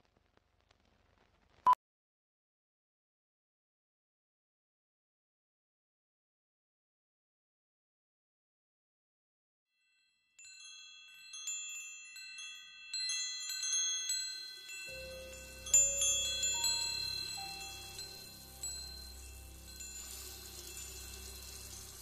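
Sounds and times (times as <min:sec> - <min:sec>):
wind chimes tinkling: 0:09.8 - 0:22.0.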